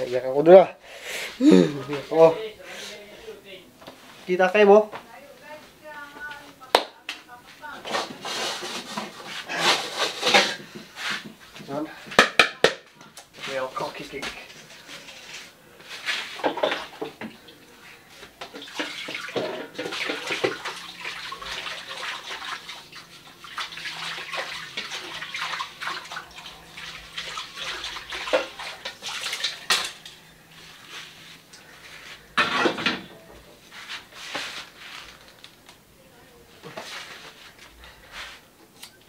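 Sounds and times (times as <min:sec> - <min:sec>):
running water: 0:16.1 - 0:32.9
metal pan clattering against sink: 0:18.5 - 0:20.7
scrubbing: 0:18.5 - 0:32.4.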